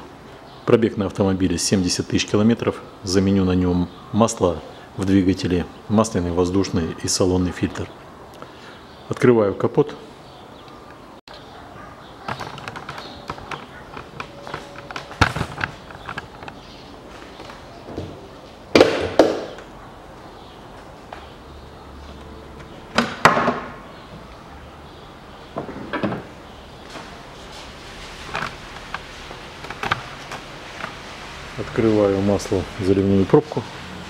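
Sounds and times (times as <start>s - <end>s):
car bonnet clunking: 22.5s - 23.8s
footsteps: 26.8s - 32.6s.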